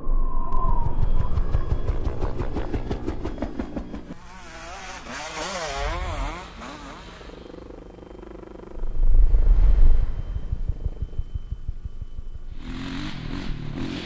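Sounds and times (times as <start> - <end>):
dirt bike engines revving: 3.9 - 8.8, 10.9 - 14.0.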